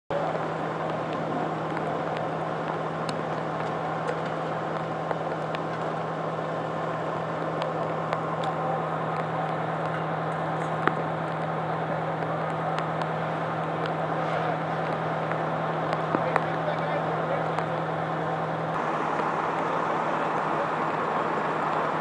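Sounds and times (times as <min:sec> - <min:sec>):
fire engine idling hum: 0:00.1 - 0:22.0
steady rushing background: 0:00.2 - 0:09.9.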